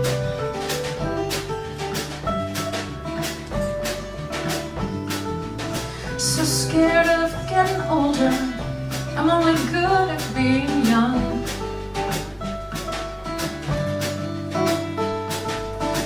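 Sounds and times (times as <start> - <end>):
guitar: 0.0 - 16.0
live band playing: 0.0 - 16.0
steady bass notes: 0.0 - 16.0
woman singing: 6.2 - 11.6.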